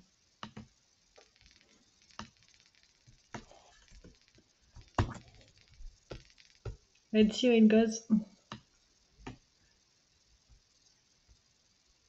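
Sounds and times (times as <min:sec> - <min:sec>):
keyboard and mouse clicks: 0:00.4 - 0:06.8, 0:08.5 - 0:09.4.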